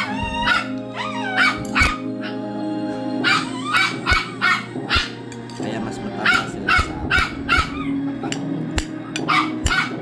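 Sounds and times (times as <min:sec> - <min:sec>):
dogs whining and yipping: 0:00.0 - 0:05.2, 0:06.3 - 0:08.2
television background music: 0:00.0 - 0:10.0.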